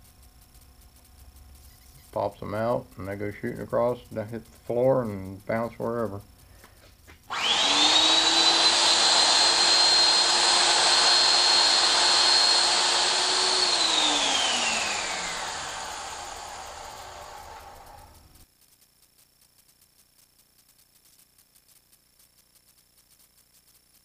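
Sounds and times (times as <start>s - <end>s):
cutter boring through steel: 7.3s - 18.2s
drill motor whining: 7.3s - 18.2s.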